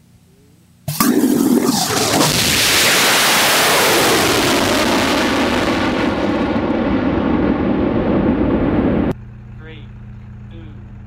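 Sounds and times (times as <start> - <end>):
rocket engine roaring: 0.9 - 9.2.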